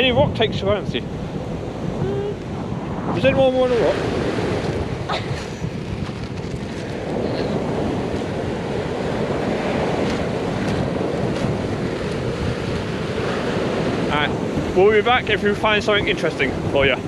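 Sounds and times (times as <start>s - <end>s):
sea surf: 0.0s - 17.0s
wind buffeting microphone: 0.0s - 17.0s
footsteps on sand: 4.6s - 8.1s, 9.7s - 12.4s.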